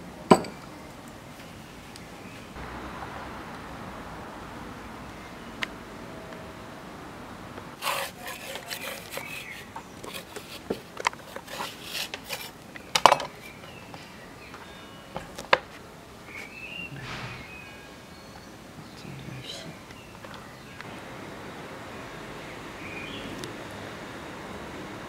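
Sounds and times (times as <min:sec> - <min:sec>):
scraping and rubbing on board: 0:07.8 - 0:12.6.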